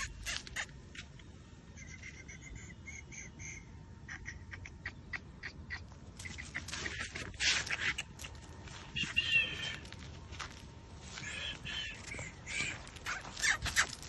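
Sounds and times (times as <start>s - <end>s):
short high animal calls: 9.0s - 9.9s.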